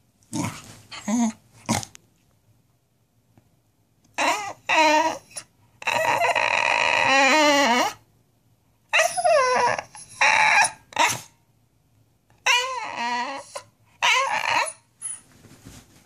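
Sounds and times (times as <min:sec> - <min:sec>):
dog howling: 0:04.2 - 0:08.0, 0:12.4 - 0:14.8.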